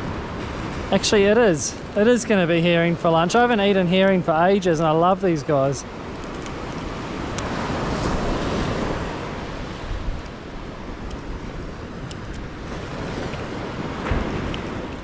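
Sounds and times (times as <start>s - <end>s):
surf breaking on beach: 0.0s - 15.0s
wind on microphone: 5.9s - 15.0s.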